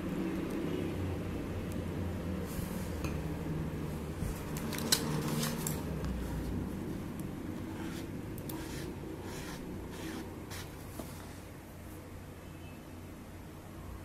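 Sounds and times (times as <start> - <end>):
low steady hum: 0.0 - 14.0
soft scrape: 7.6 - 11.5.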